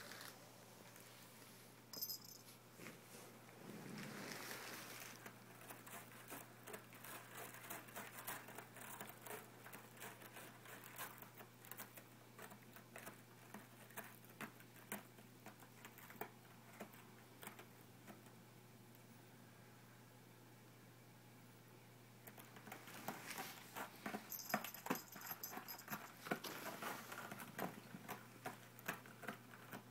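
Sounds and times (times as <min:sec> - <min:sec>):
cat claws scratching post: 0:05.0 - 0:18.2, 0:22.3 - 0:29.9.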